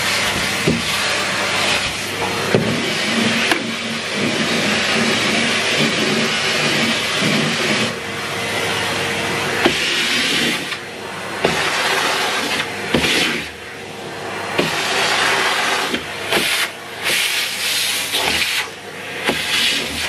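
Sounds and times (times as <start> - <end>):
vacuum cleaner running: 0.0 - 20.0.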